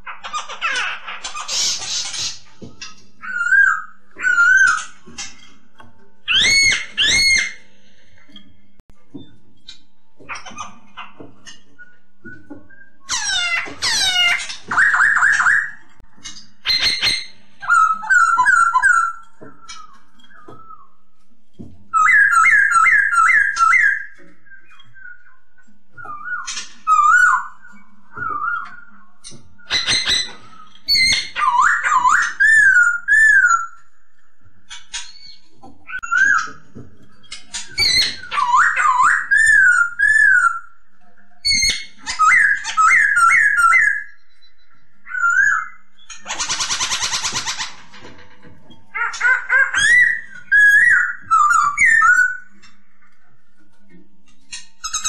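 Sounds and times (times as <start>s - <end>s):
bird singing whistled phrases: 37.8s - 40.8s, 49.5s - 52.5s.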